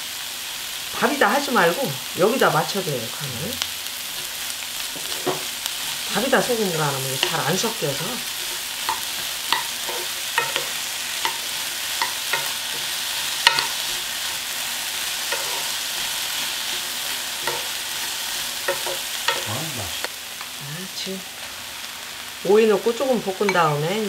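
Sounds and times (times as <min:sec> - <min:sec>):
vegetables sizzling in a frying pan: 0:00.0 - 0:24.0
spatula knocking and scraping pan: 0:04.2 - 0:19.5, 0:23.4 - 0:24.0.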